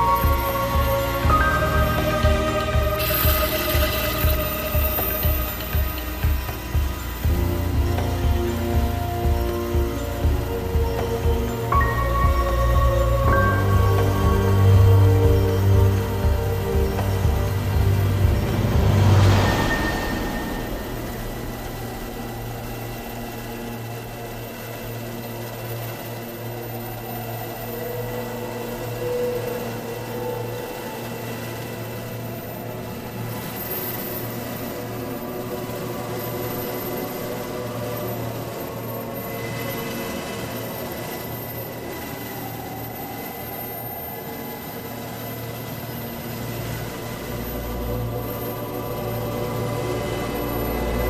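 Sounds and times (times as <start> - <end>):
high-pitched whine: 0.0 - 51.0
helicopter engine and rotor drone: 19.7 - 51.0.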